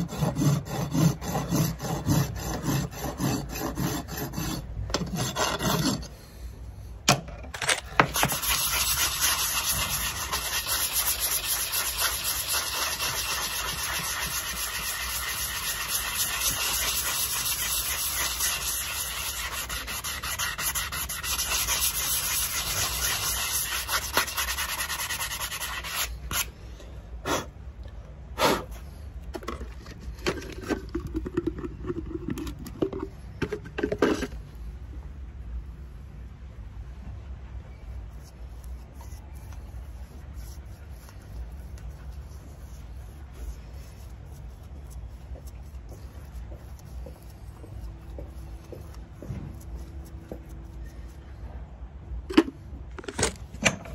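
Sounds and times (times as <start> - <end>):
sanding block rubbing hoof: 0.0 - 6.1, 8.1 - 26.5.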